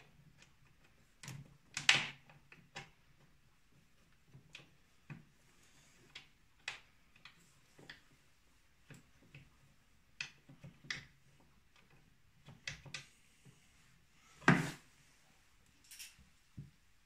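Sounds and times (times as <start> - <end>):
metallic clicks of chain and gears: 15.8 - 16.2.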